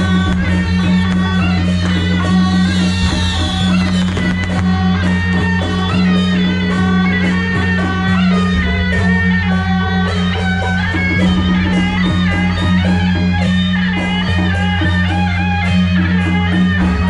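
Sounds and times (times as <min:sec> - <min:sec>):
steady low drone: 0:00.0 - 0:14.7
drums: 0:00.0 - 0:17.0
plucked guitar-like notes: 0:00.0 - 0:17.0.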